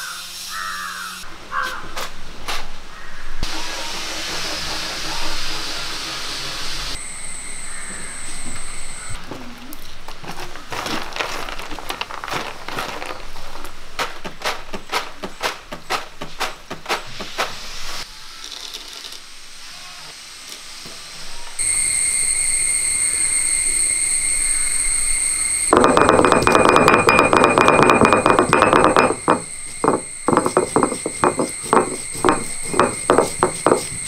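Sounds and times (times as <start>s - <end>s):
steady high whine: 2.2s - 9.2s, 21.1s - 34.0s
loud rough noise: 25.7s - 33.9s.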